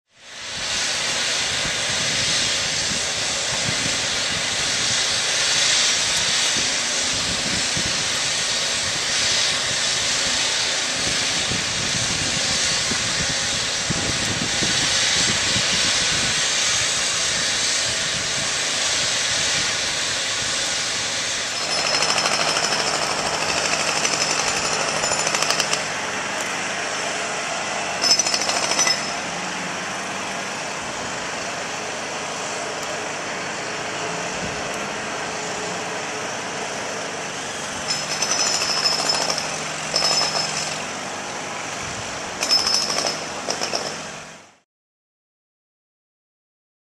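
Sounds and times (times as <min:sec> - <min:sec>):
road-works machinery din: 0:00.1 - 0:44.6.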